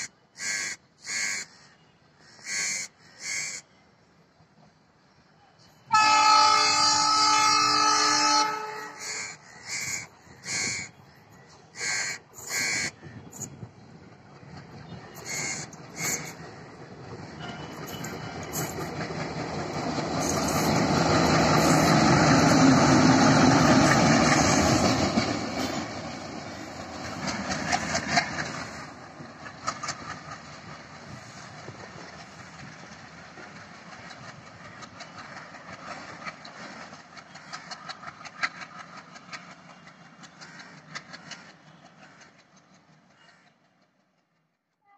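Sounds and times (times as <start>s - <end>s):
diesel locomotive engine passing: 2.4s - 44.9s
wheels clicking on track: 12.4s - 44.6s.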